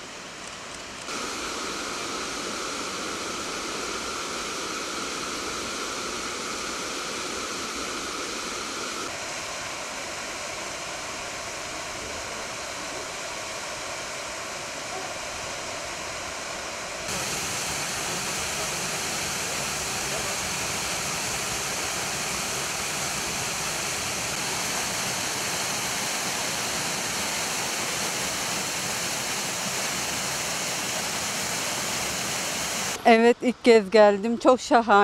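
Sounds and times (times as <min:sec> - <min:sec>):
waterfall rushing: 0:01.1 - 0:33.0.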